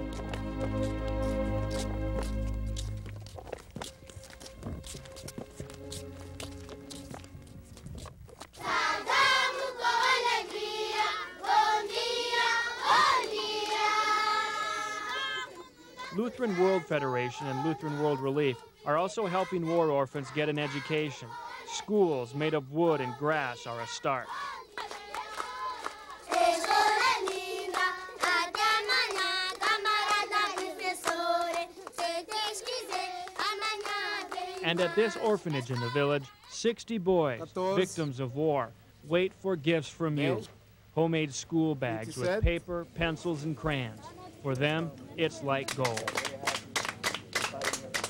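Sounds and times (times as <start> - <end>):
children singing in unison: 8.6 - 36.2.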